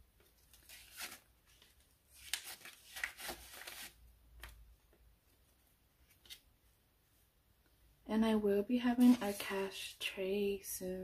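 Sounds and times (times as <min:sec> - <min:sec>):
paper money rustling: 0:00.6 - 0:04.0.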